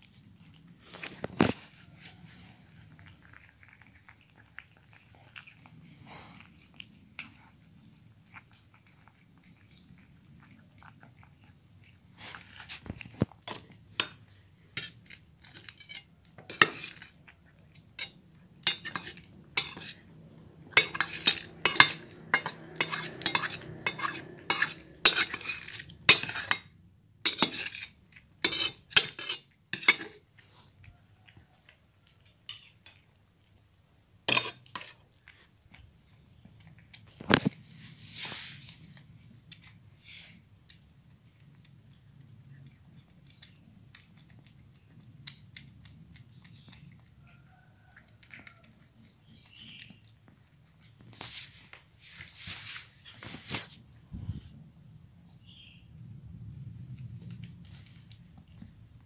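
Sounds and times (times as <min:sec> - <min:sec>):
metal spoon clinking in steel bowl: 0:18.0 - 0:20.0, 0:20.7 - 0:26.6, 0:27.3 - 0:30.2.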